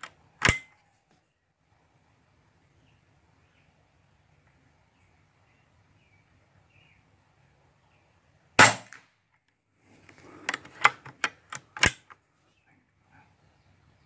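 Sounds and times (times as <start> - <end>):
air rifle shot: 8.6 - 9.1
sharp clicks and knocks: 10.4 - 12.2.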